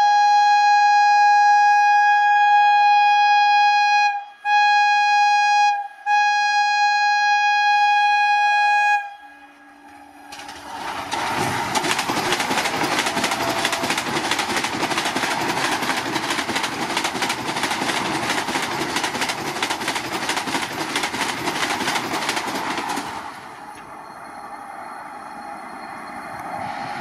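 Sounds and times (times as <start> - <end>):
train rushing past: 7.9 - 27.0
wheels clicking on rails: 9.6 - 27.0.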